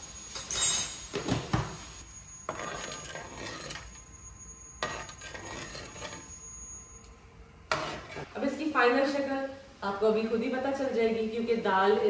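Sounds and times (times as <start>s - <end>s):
metal spoon scraping cooking pot: 2.5s - 4.1s, 4.8s - 6.4s, 7.7s - 8.3s.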